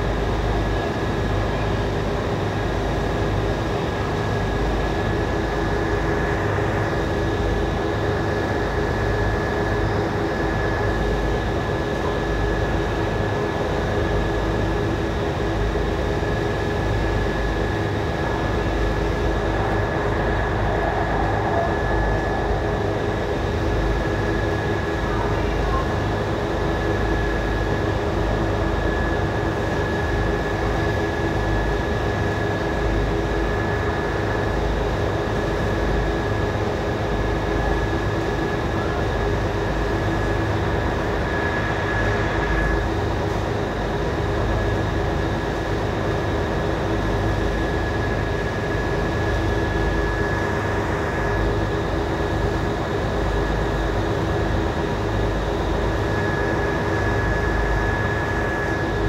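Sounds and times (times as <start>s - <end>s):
wind: 0.0s - 59.0s
boat engine droning: 16.6s - 26.2s.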